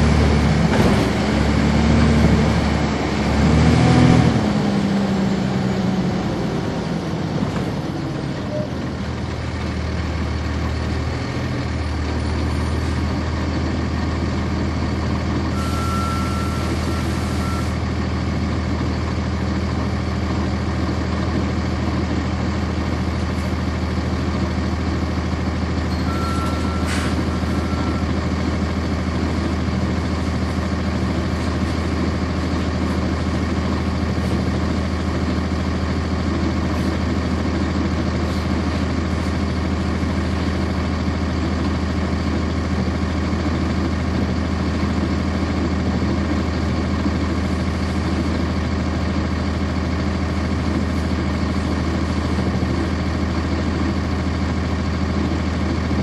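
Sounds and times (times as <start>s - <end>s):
bus diesel engine running: 0.0s - 56.0s
long high beep: 15.5s - 17.8s, 25.9s - 28.1s.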